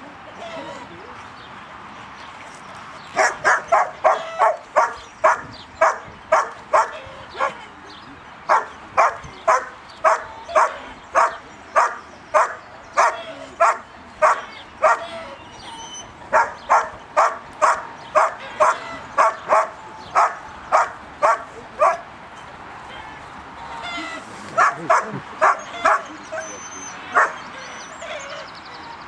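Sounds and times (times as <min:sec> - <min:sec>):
dog barking: 0:03.2 - 0:07.6, 0:08.5 - 0:15.0, 0:16.3 - 0:22.0, 0:24.6 - 0:26.1, 0:27.1 - 0:27.4.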